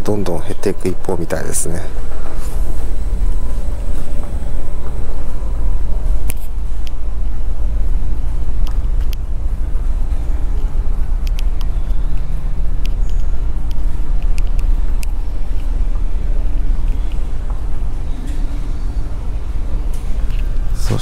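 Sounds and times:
low rumble of ship engines: 0.0s - 21.0s
light clicks: 11.2s - 15.6s.

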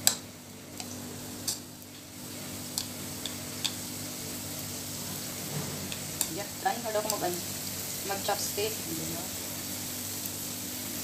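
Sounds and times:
chopsticks clicking against a bowl: 2.7s - 3.8s.

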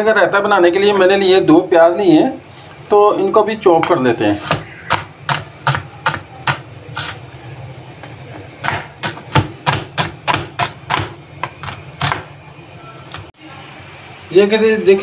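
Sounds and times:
knife chopping on plastic board: 3.8s - 7.2s, 8.0s - 12.4s.

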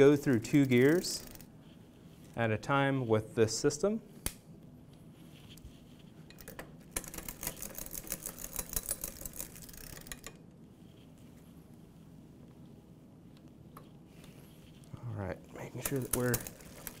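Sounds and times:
derailleur click: 6.4s - 10.4s.

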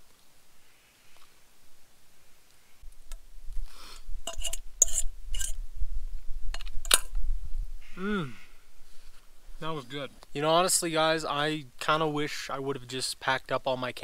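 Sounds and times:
utensil clinking on metal cookware: 4.3s - 5.5s.

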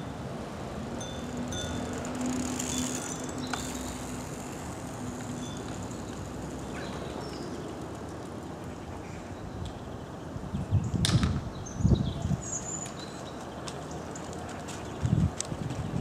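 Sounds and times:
bicycle rolling over bricks: 0.6s - 8.9s.

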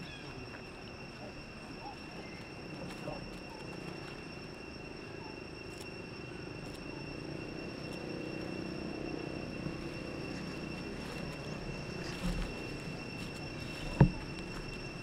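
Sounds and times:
high-pitched insect drone: 0.0s - 15.0s
low background hum: 0.0s - 15.0s.

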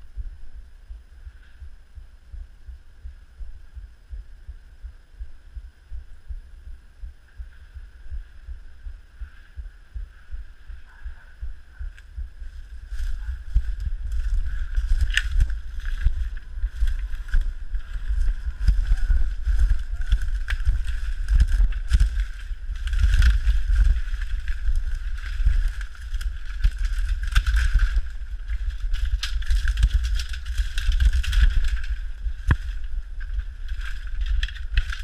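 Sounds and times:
footsteps low thuds: 0.0s - 35.0s
dry bamboo crackling and rustling: 10.5s - 35.0s.

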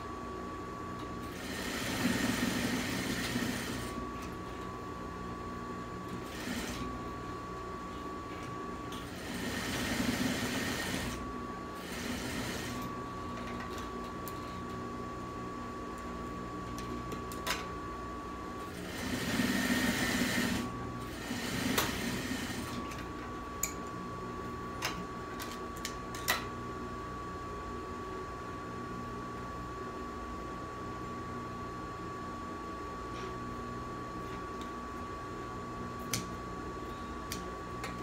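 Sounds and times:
sewing machine stitching: 1.2s - 4.0s, 6.2s - 6.9s, 9.0s - 11.2s, 11.8s - 12.9s, 18.7s - 22.8s.

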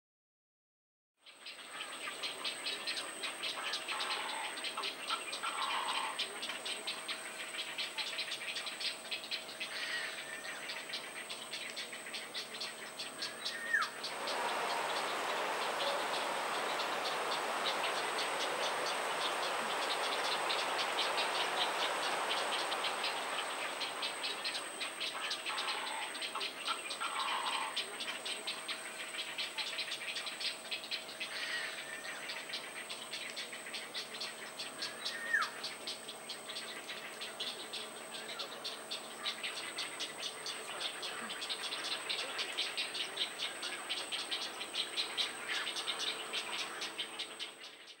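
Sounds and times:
steady hiss: 2.0s - 47.8s
insect chorus pulsing: 12.5s - 47.8s
short bird calls: 13.6s - 27.8s.

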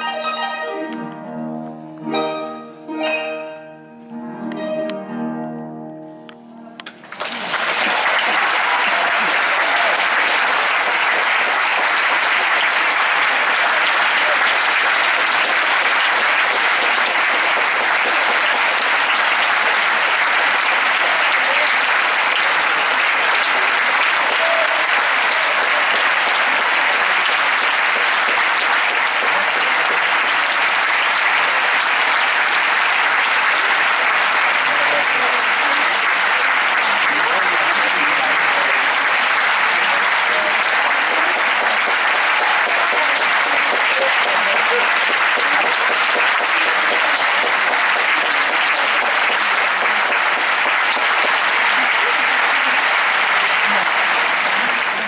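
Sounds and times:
audience applauding: 6.8s - 55.0s.

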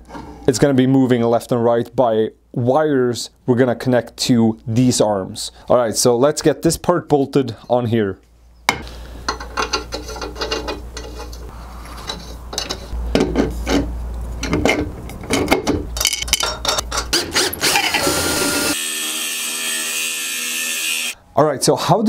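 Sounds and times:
cordless drill whirring: 17.4s - 18.8s.

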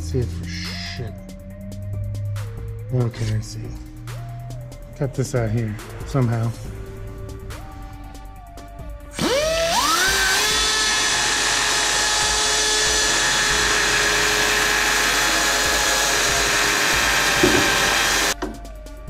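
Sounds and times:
rotary cutting tool whining: 9.2s - 18.4s.

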